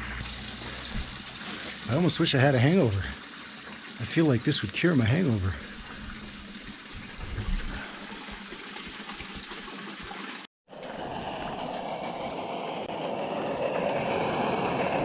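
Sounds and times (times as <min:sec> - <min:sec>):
water trickling from fountain: 0:00.0 - 0:12.5
steady rushing noise: 0:10.8 - 0:15.0.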